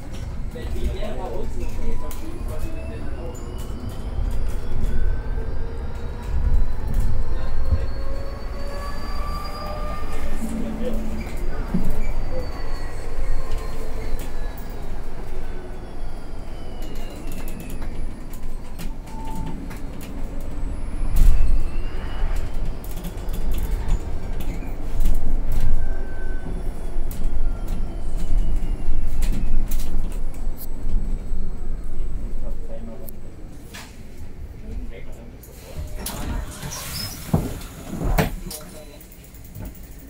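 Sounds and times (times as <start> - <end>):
bus road rumble: 0.0 - 40.0
rattles and creaks from fittings: 35.9 - 40.0.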